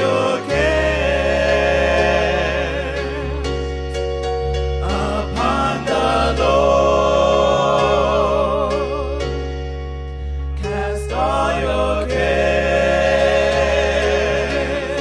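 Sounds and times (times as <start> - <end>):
sustained keyboard chords: 0.0 - 15.0
person singing with vibrato: 4.8 - 9.5.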